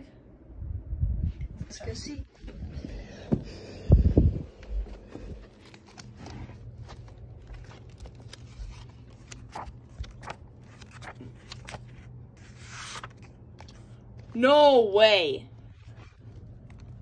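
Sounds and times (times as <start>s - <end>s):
book pages rustling: 4.5s - 14.4s, 15.6s - 17.0s.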